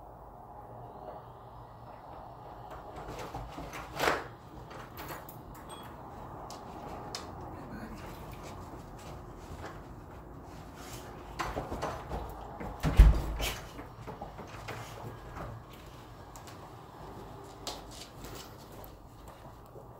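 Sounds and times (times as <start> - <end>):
door shutting with thump: 12.7 - 13.8.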